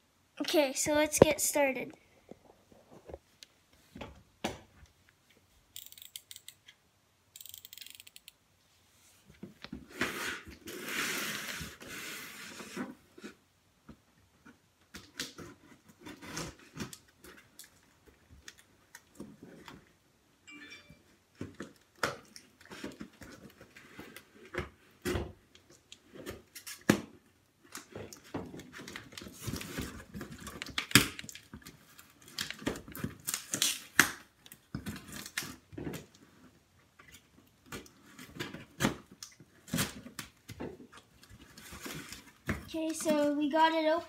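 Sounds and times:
packing tape peeled and torn: 26.5 - 27.0, 28.7 - 35.6.

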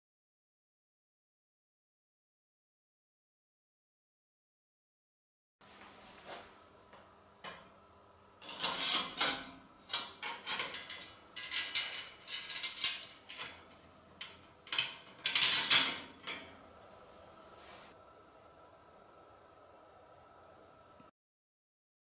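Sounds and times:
metal rack clinking and rattling: 8.4 - 16.7
metallic ring: 8.4 - 17.0.

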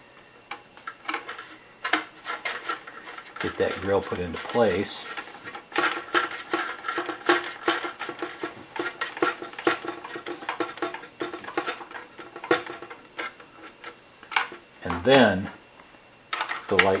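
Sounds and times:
hard plastic parts clicking: 0.5 - 15.1, 16.3 - 17.0.

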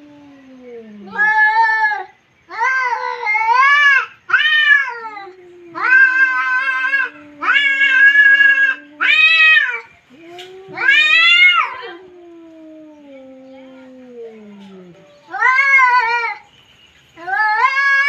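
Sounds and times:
cat yowling rising and falling: 4.3 - 13.1
cat low long yowl: 4.9 - 16.2.

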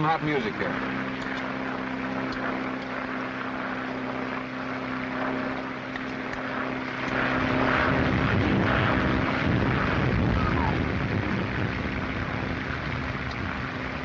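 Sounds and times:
propeller airplane engines droning: 0.0 - 14.0
rushing noise: 7.3 - 14.0.

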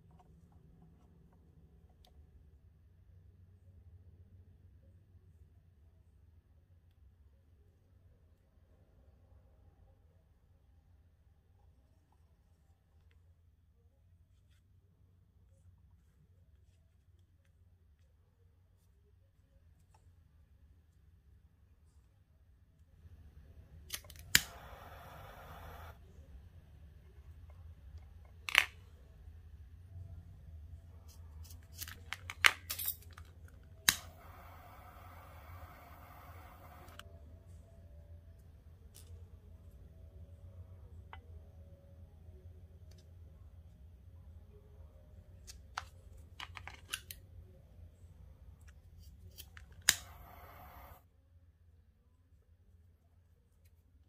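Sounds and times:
steady hiss: 50.0 - 51.0.

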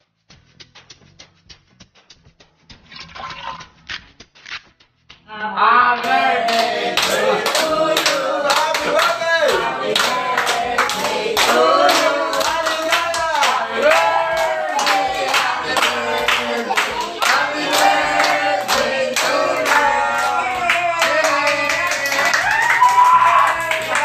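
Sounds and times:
group of voices singing: 5.6 - 22.5
hands clapping in rhythm: 6.0 - 24.0.

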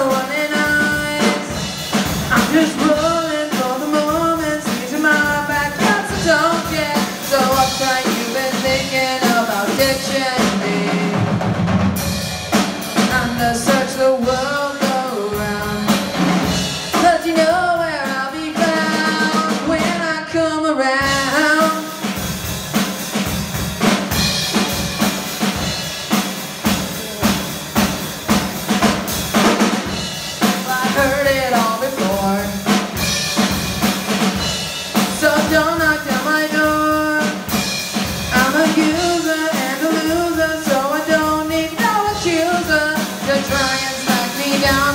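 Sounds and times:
lead singer singing: 0.0 - 11.4, 13.0 - 22.0, 30.4 - 32.8, 35.0 - 37.6, 38.3 - 44.9
drum kit steady beat: 0.0 - 20.1, 21.0 - 44.9.

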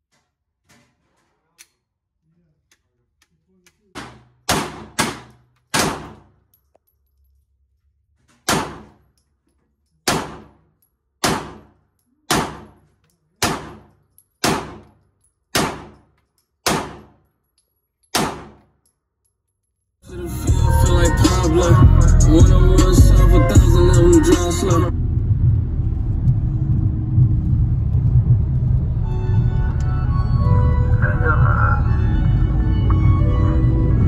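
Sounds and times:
handgun shots with echo: 4.0 - 6.4, 8.4 - 9.1, 10.0 - 17.3, 18.1 - 18.7.

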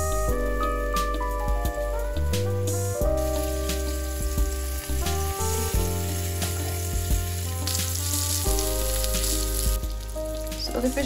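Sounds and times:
background music: 0.0 - 11.0
oil popping: 2.4 - 11.0
fish sizzling in hot oil: 2.9 - 11.0.

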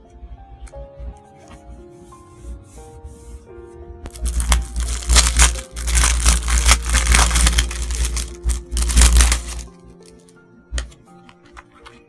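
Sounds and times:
soft piano music: 0.0 - 12.0
plastic packaging crinkling: 4.1 - 10.3.

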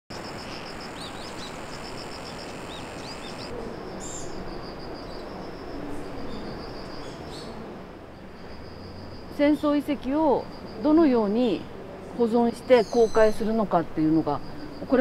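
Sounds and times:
birds chirping: 0.1 - 7.6, 12.3 - 15.0.

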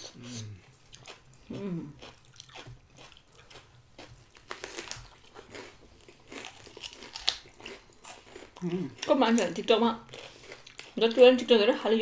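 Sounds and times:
crunching of a crunchy snack: 1.0 - 9.1, 10.1 - 11.0.

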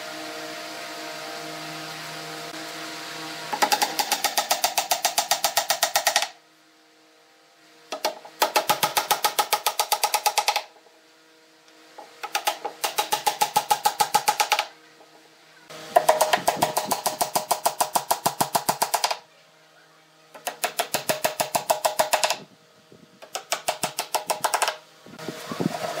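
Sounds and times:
hammer tapping wooden dowels: 3.5 - 6.4, 7.9 - 10.7, 12.0 - 14.7, 16.0 - 19.2, 20.4 - 22.4, 23.2 - 24.8.

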